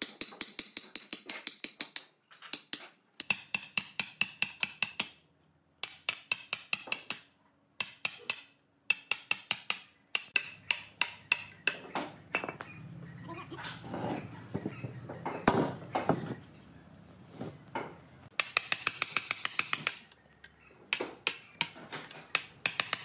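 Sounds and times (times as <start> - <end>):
mallet striking a chisel into wood: 0.0 - 5.2, 5.8 - 11.9, 18.3 - 20.0.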